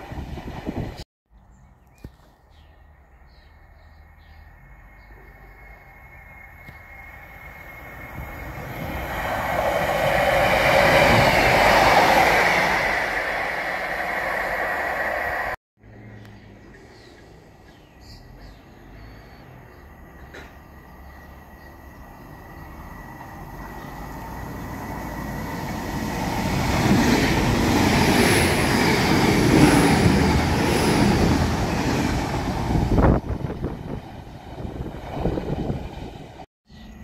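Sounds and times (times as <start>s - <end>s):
train wheels rumbling on rail: 0.0s - 1.0s, 5.1s - 15.6s, 20.1s - 36.4s
faint bird chirps: 1.5s - 8.6s, 16.0s - 22.7s.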